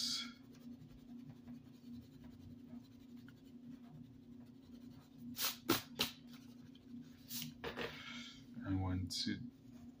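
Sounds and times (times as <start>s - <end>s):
eraser rubbing on paper: 0.0s - 7.6s.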